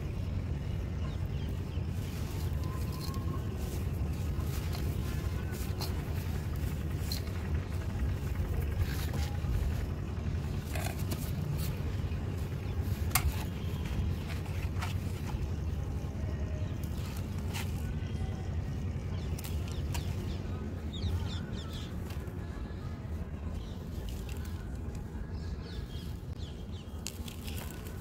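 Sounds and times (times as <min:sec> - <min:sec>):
low background rumble: 0:00.0 - 0:28.0
hands crumbling dry mud: 0:24.0 - 0:25.0, 0:27.0 - 0:28.0.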